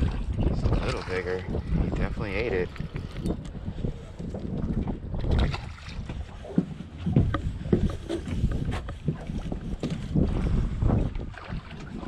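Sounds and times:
small waves slapping boat hull: 0.0 - 12.0.

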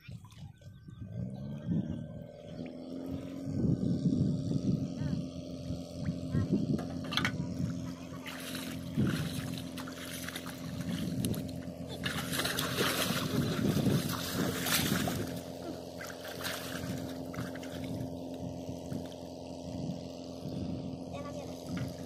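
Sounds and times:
pond water splashing: 0.0 - 3.5, 7.0 - 20.3
steady low hum: 0.0 - 22.0.

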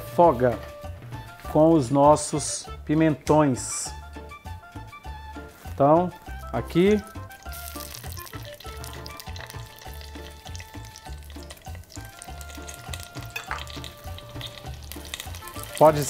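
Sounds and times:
background music with steady beat: 0.0 - 16.0
pepper sizzling in hot oil: 6.2 - 16.0.

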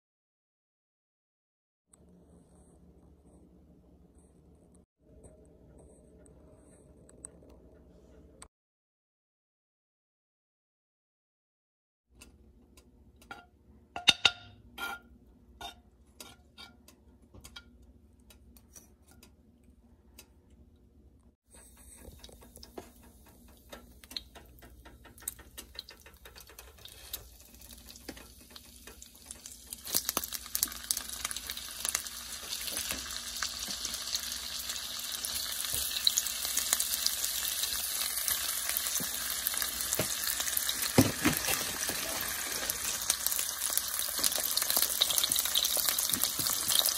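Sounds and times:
metal spoon scraping a frying pan: 13.3 - 16.9
sausages sizzling in fat: 21.6 - 46.9.

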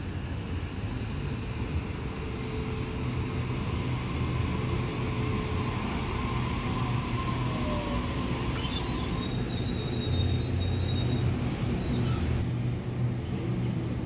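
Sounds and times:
train wheels rumbling on rail: 0.0 - 14.0
high wheel squeal: 6.6 - 12.4.

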